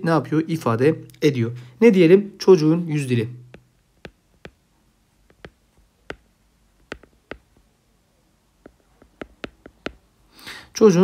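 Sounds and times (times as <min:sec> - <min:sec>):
stylus tapping on tablet screen: 0:03.5 - 0:07.7, 0:08.6 - 0:10.1.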